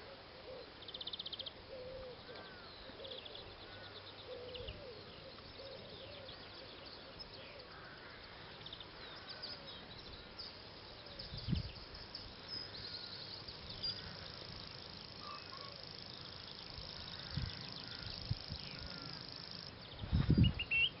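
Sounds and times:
distant birds calling: 0.0s - 21.0s
warbler reeling trill: 11.2s - 19.8s.

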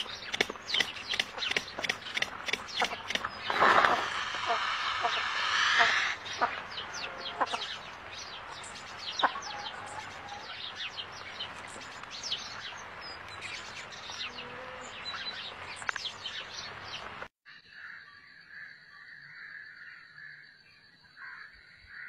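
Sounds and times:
sharp clicks: 0.0s - 4.4s
small birds chirping: 0.0s - 17.3s.

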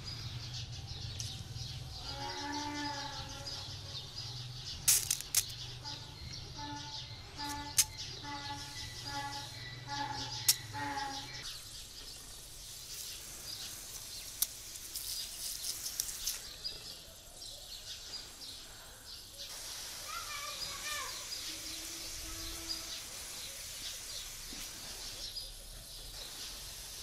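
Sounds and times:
birds chirping: 0.0s - 27.0s
sprayer mist hissing: 4.7s - 16.7s, 19.5s - 27.0s
sharp clicks: 4.8s - 5.6s.

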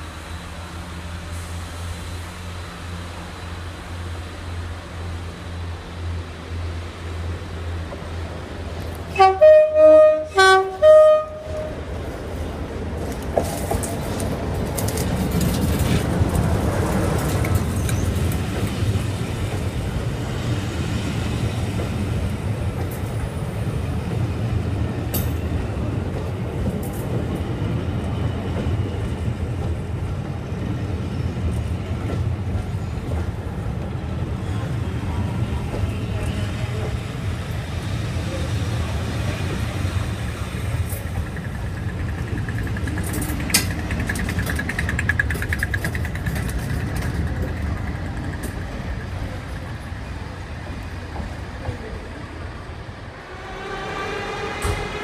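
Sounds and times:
train rumbling past: 0.0s - 55.0s
two-tone locomotive horn blasts: 9.1s - 11.8s, 53.2s - 55.0s.

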